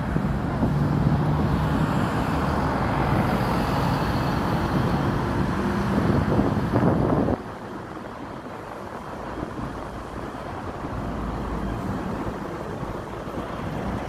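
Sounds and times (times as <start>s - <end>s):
rumble of engines: 0.0s - 14.0s.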